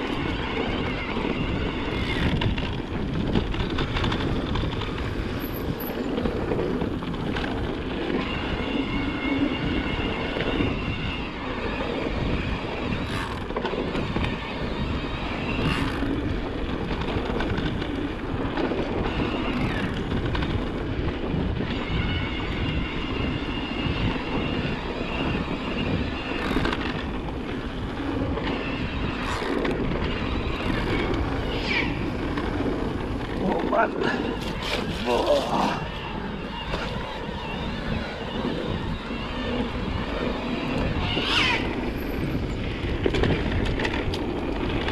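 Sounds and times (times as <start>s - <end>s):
tyre and rattle noise: 0.0s - 8.2s, 26.4s - 37.2s
wind rushing over microphone: 0.0s - 44.9s.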